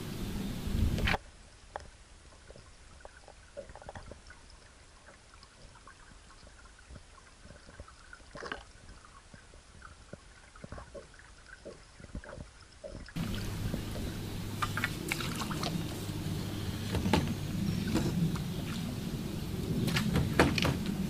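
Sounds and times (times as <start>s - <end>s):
trickling water: 0.9s - 21.0s
low underwater rumble: 2.4s - 21.0s
outboard motor idling: 13.2s - 21.0s.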